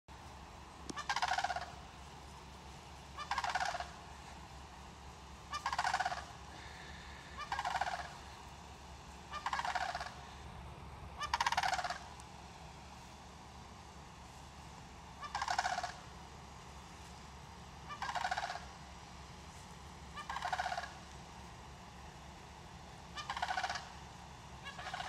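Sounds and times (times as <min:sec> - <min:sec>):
turkey gobbling: 0:00.8 - 0:08.6, 0:09.2 - 0:10.4, 0:11.2 - 0:12.2, 0:15.1 - 0:16.2, 0:17.8 - 0:19.2, 0:20.1 - 0:21.2, 0:23.0 - 0:25.0.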